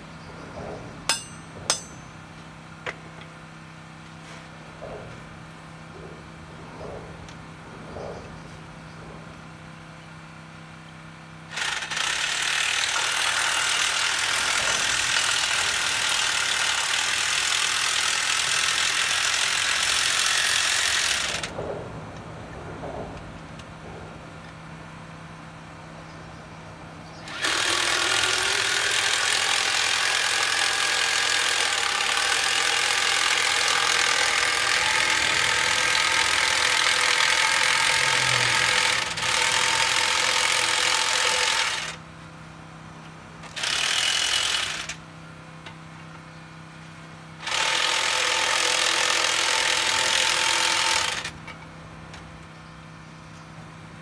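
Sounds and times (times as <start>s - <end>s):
cordless power tool running: 11.5s - 21.6s, 27.2s - 42.0s, 43.5s - 45.0s, 47.4s - 51.4s
steady low hum: 21.0s - 30.1s.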